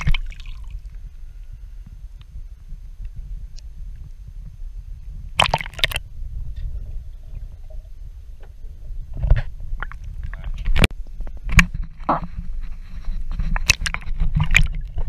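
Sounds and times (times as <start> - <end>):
sharp water splashes: 0.0 - 0.8, 5.4 - 6.0
water sloshing and gurgling: 0.0 - 1.4, 5.1 - 10.9, 11.5 - 15.0
steady low rumble: 0.0 - 15.0.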